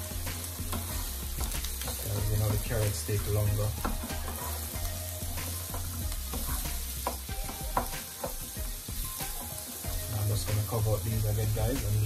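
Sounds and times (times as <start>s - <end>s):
spatula scraping a pan: 0.0s - 10.2s
vegetables sizzling in oil: 0.0s - 12.0s.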